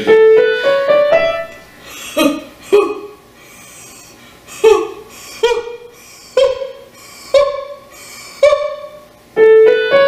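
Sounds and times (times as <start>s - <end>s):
person singing breathy staccato notes: 1.9s - 9.0s.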